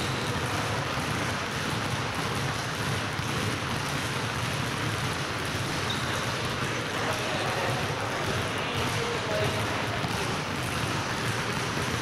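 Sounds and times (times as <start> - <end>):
basketballs bouncing on wooden floor: 0.0 - 12.0.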